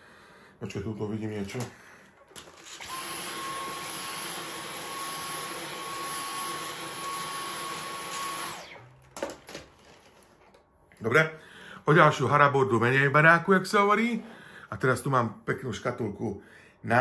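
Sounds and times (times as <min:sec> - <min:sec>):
stick vacuum cleaner whining: 0:01.4 - 0:10.6.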